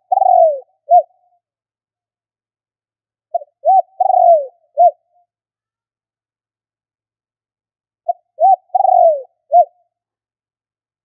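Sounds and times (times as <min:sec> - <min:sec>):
dove cooing: 0:00.0 - 0:01.2, 0:03.3 - 0:05.1, 0:08.1 - 0:09.8.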